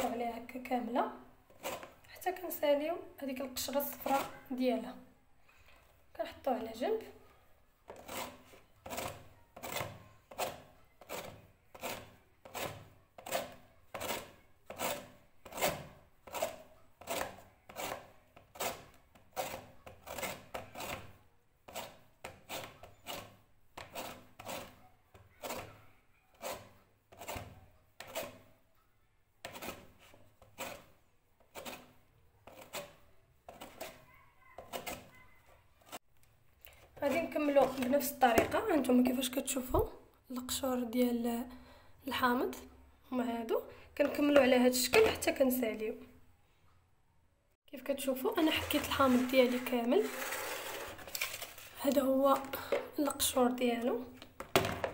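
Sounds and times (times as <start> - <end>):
lemon rasping on grater: 7.9 - 28.5, 31.5 - 36.0, 48.3 - 51.8.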